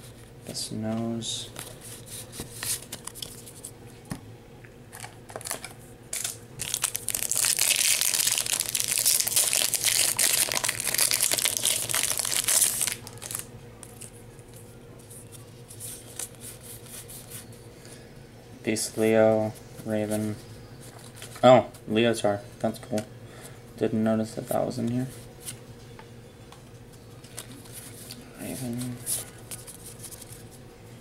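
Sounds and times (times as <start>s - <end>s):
foil wrapper crinkling and tearing: 5.3s - 14.1s.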